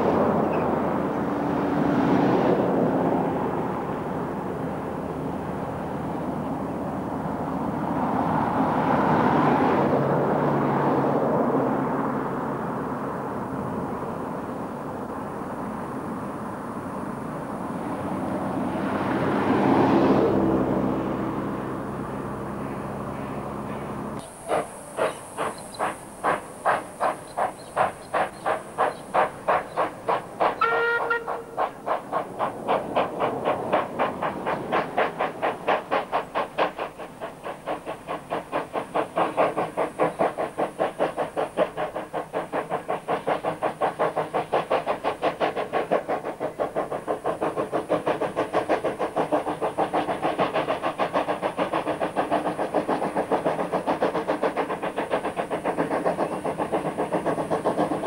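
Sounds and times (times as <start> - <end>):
steam locomotive chuffing: 9.8 - 58.0
train whistle toot: 30.6 - 31.6.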